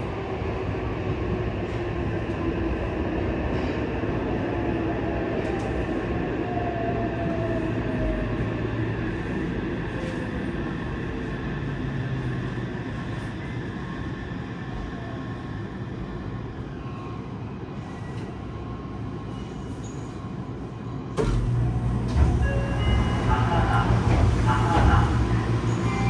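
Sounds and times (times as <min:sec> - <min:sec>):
train running noise: 0:00.0 - 0:26.0
train inverter tones descending: 0:21.1 - 0:26.0.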